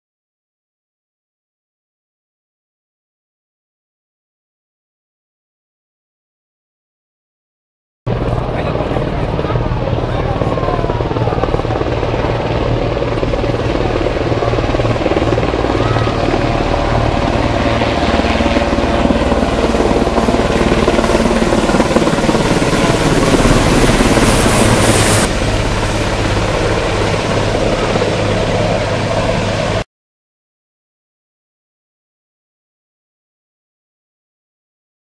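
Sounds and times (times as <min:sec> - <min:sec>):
helicopters flying overhead: 0:08.1 - 0:29.8.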